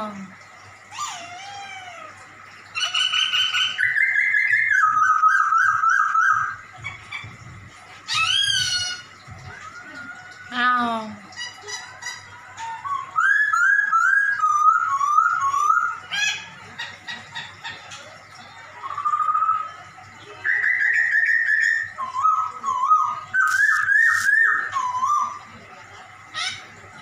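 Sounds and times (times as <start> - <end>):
bird singing whistled phrases: 2.9 - 6.6, 12.6 - 16.1, 18.8 - 25.5.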